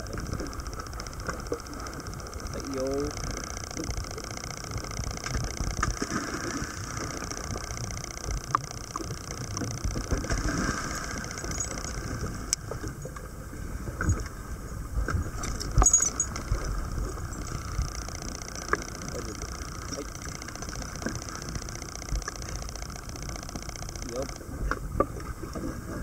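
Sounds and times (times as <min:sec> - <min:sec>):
boat engine running: 0:00.0 - 0:26.0
choppy water: 0:00.0 - 0:26.0
wind: 0:00.0 - 0:26.0
water splashing: 0:04.8 - 0:12.9.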